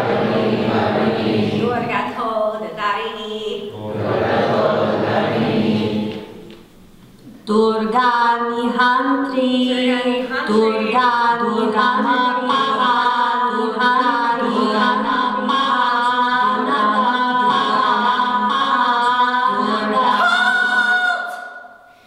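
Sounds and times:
woman singing unaccompanied: 7.3 - 21.5.

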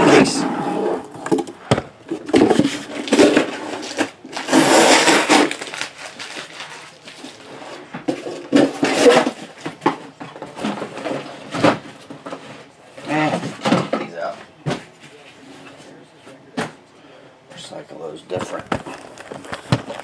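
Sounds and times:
plastic wrap crinkling: 2.6 - 7.5, 18.4 - 20.0.

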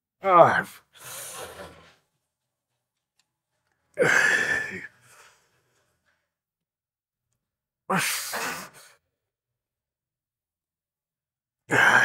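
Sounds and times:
man exhaling with exertion: 4.0 - 5.2, 7.9 - 9.0.

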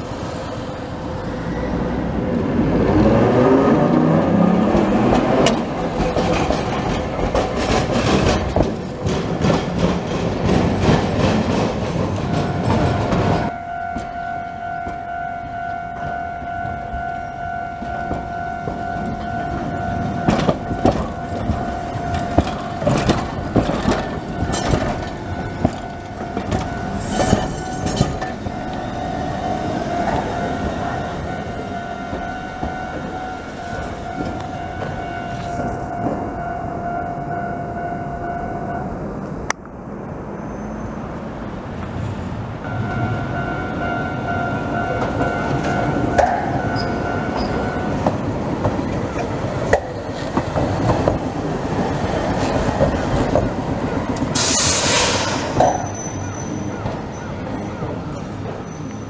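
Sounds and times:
tram wheels clicking over rail joints: 0.0 - 14.2, 17.8 - 36.5, 42.7 - 59.0
steady high tone: 12.2 - 39.2, 42.6 - 48.2.

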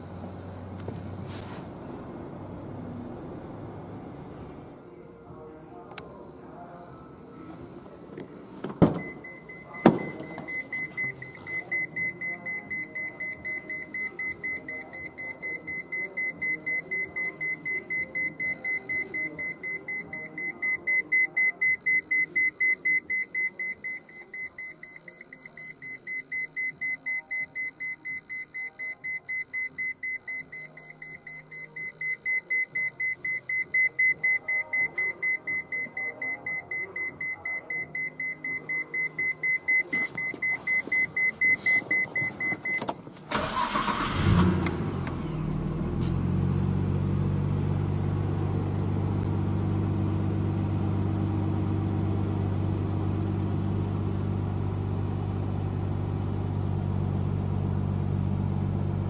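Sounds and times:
car door clunks: 8.6 - 9.2, 9.8 - 10.5
key warning chime beeping: 9.0 - 43.9.

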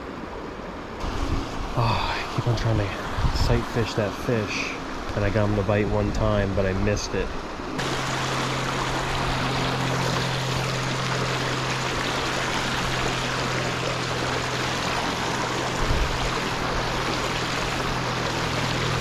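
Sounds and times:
low steady hum: 0.0 - 19.0
river water over rocks: 0.0 - 19.0.

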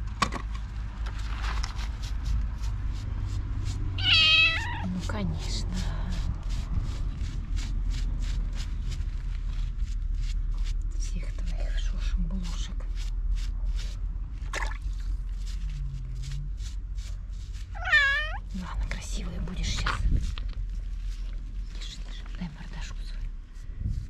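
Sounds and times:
kitten meowing: 4.0 - 4.9, 17.7 - 18.5.

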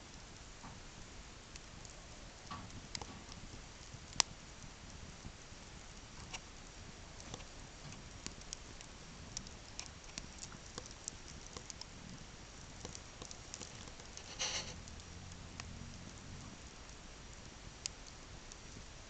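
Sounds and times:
wood fire crackling: 0.0 - 19.0
brief hiss: 14.2 - 14.8.

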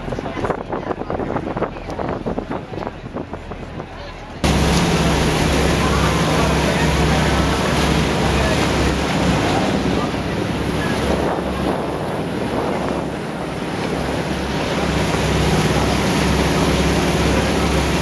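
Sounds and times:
wind buffeting microphone: 0.0 - 18.0
water rushing and splashing: 4.4 - 18.0.

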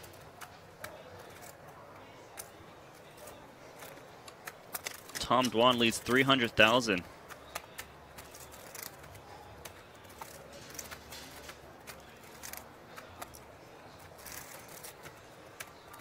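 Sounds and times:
poker chips clicking: 7.2 - 16.0.

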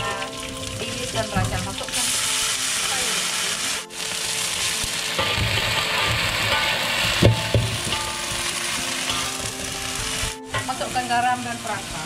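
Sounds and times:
food sizzling in hot oil: 0.0 - 12.0
metal spatula scraping a wok: 0.2 - 11.1
spatula knocking against wok: 5.2 - 10.7.

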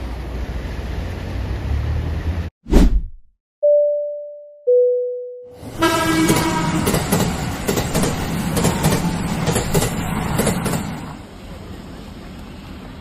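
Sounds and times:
brief humming tone: 3.6 - 5.6
train rumbling on rails: 5.6 - 13.0.

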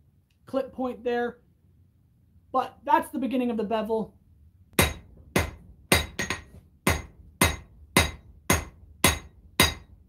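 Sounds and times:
hammer striking blade on anvil: 4.8 - 10.0.

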